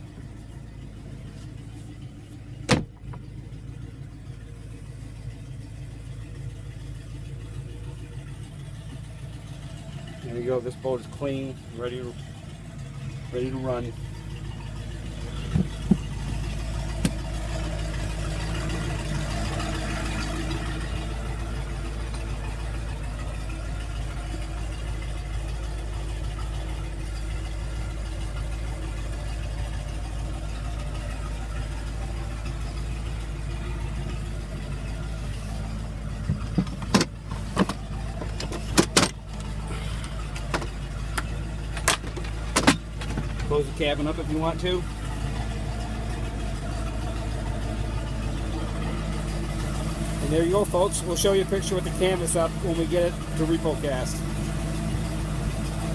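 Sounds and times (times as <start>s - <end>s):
engine idling: 0.0s - 55.9s
sharp knocks and clicks: 36.3s - 39.5s, 40.3s - 43.5s.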